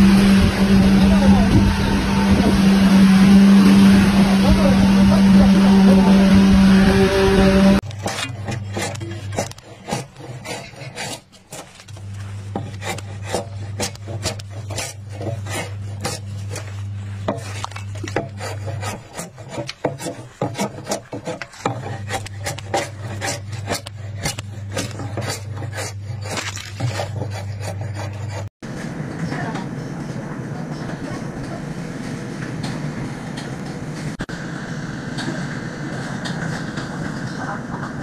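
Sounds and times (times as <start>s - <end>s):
low hum: 0.0s - 9.7s, 21.6s - 38.0s
steel blade scraping wood: 7.2s - 28.5s.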